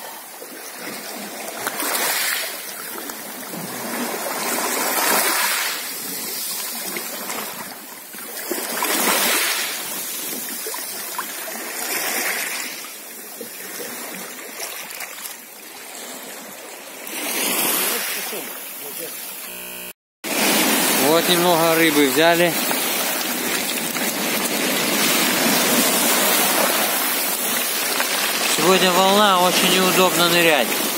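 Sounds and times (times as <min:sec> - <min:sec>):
small waves on pebble shore: 0:00.0 - 0:19.7, 0:20.3 - 0:30.9
oar blade splashing: 0:20.5 - 0:30.9.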